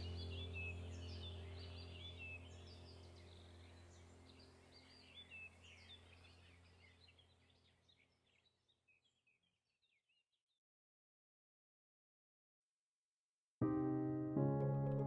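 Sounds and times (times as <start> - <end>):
low steady hum: 0.0 - 8.0
faint birds chirping: 0.0 - 10.5.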